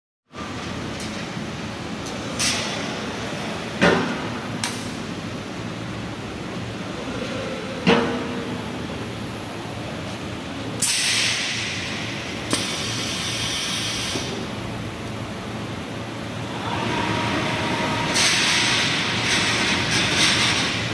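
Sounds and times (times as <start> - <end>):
short air hisses: 12.5 - 14.4.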